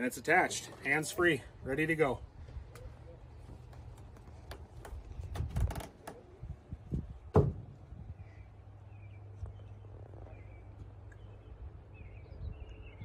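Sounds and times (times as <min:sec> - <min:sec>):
handling clicks and knocks: 0:02.8 - 0:06.3
loud thump: 0:07.3 - 0:07.8.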